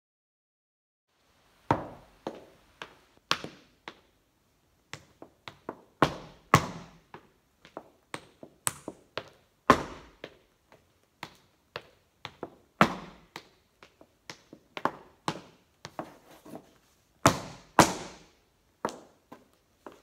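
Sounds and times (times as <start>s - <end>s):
heeled shoes tapping on wooden floor: 5.0s - 16.2s, 17.2s - 20.0s.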